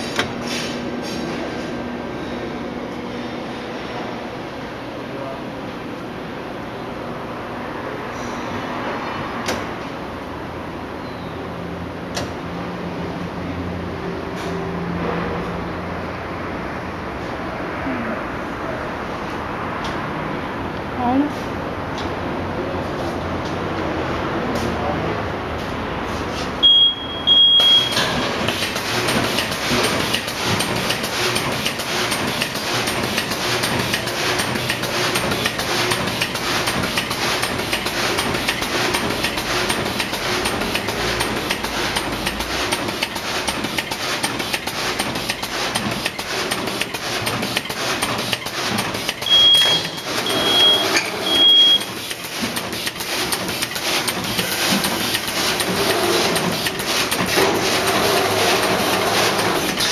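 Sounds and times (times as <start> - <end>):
electronic beeps: 26.6 - 28.0, 49.3 - 51.9
machine rapid clatter: 27.9 - 51.2, 51.8 - 59.9.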